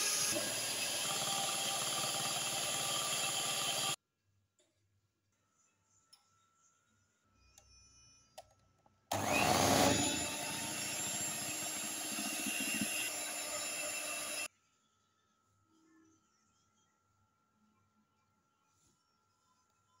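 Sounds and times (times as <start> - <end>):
electric hand mixer whirring: 0.0 - 4.0, 9.1 - 14.5.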